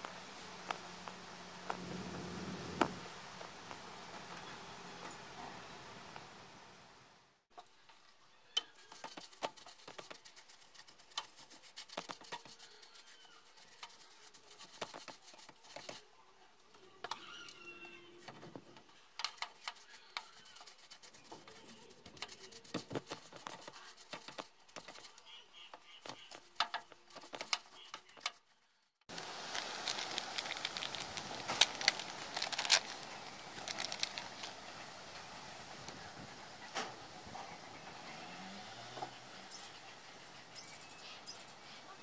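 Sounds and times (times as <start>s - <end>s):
brush scrubbing metal: 8.6s - 16.0s, 19.2s - 28.4s
brush clicking against metal: 19.2s - 21.6s.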